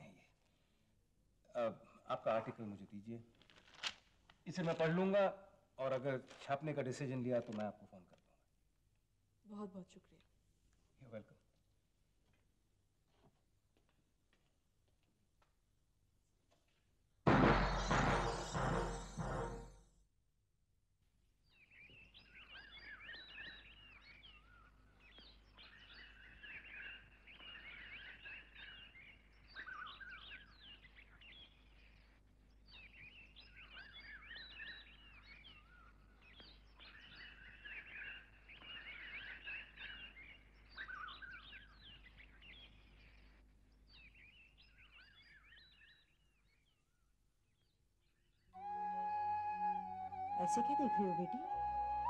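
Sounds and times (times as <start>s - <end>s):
small birds chirping: 21.4s - 48.6s.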